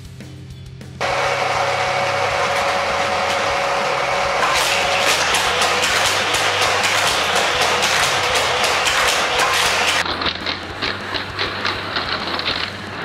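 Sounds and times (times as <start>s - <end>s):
toy track booster motors whirring: 1.0s - 13.0s
toy cars clacking: 4.4s - 13.0s.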